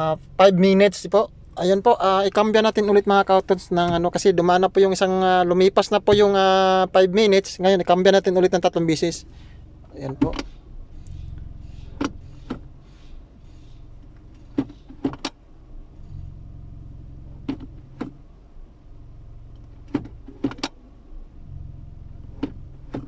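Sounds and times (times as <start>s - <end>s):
car engine idling: 0.0s - 23.0s
gear selector clicking: 9.8s - 12.7s, 14.0s - 15.4s, 17.3s - 18.2s, 19.5s - 20.8s, 22.2s - 23.0s.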